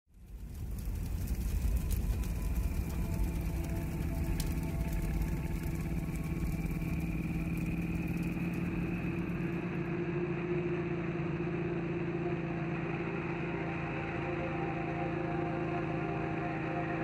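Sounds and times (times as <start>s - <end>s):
motorcycle engine running: 0.2s - 13.6s.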